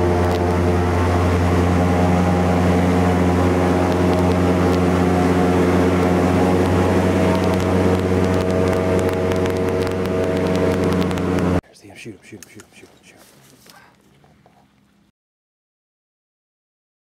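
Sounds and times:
boat motor running: 0:00.0 - 0:11.6.

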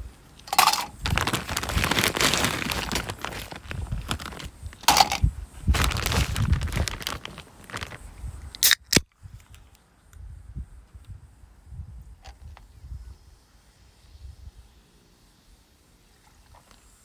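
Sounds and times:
ice rustling and crunching: 0:00.4 - 0:08.8.

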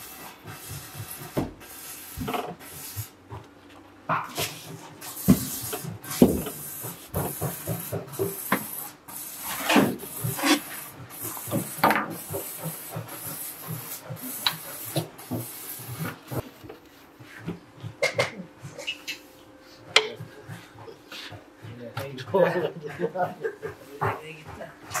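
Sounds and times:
scraper scraping concrete off metal: 0:04.4 - 0:16.5.

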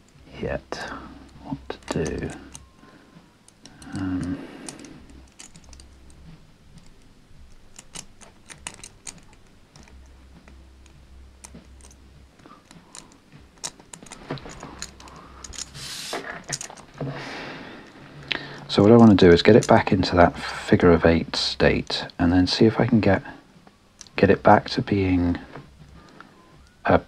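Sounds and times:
metal puzzle pieces clicking: 0:03.5 - 0:06.2, 0:06.8 - 0:15.8, 0:16.4 - 0:17.0.

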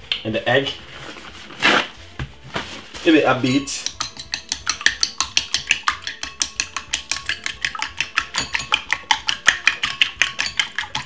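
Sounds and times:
utensil clinking against bowl: 0:03.7 - 0:11.0.

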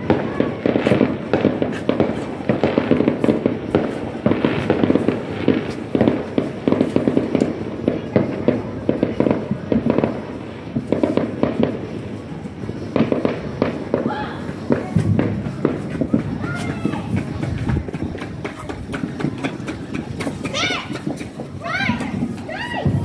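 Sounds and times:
fireworks bangs and crackling: 0:00.0 - 0:23.0.

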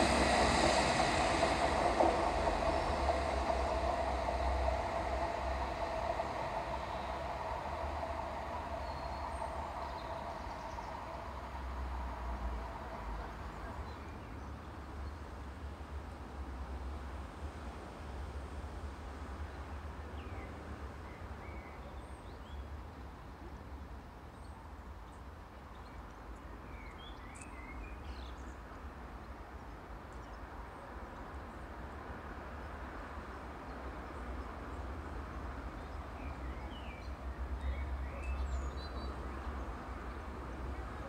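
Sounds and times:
distant diesel train rumble: 0:00.0 - 0:20.0, 0:31.6 - 0:41.0.

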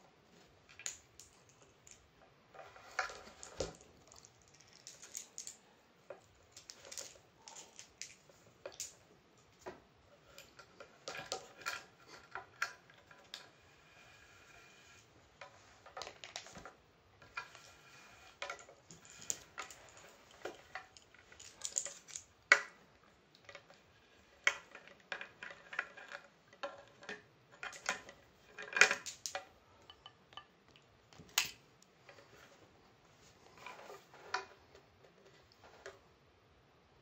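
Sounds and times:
small metallic clinks and clicks: 0:03.1 - 0:09.0, 0:18.4 - 0:22.7.

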